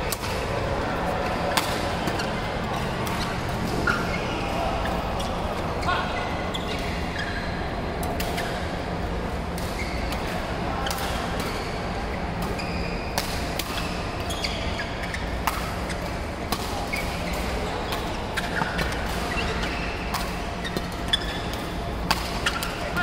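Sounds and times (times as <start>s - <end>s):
hum of large hall: 0.0s - 23.0s
shoes squeaking on court: 0.2s - 7.6s, 9.7s - 10.4s, 11.0s - 13.1s, 13.7s - 16.2s, 16.8s - 23.0s
rackets striking shuttlecocks: 1.2s - 4.1s, 16.5s - 23.0s.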